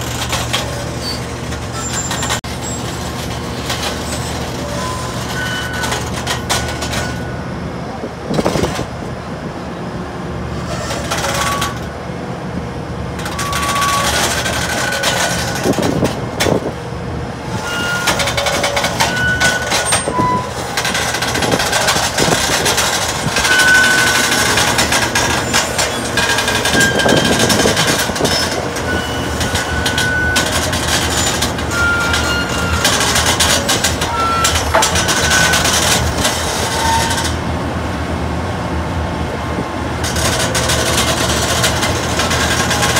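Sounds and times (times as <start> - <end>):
short high squeaks and knocks: 0.0 - 7.5, 10.6 - 11.9, 13.2 - 16.6, 17.5 - 37.4
diesel engine running: 0.0 - 42.9
tracks clanking: 0.0 - 42.9.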